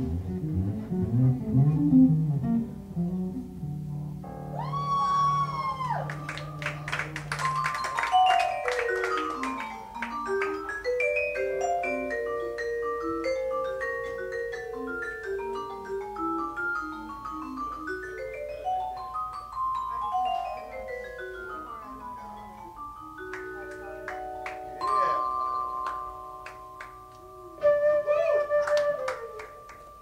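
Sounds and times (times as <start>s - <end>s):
vibraphone mallet runs: 4.8s - 27.6s.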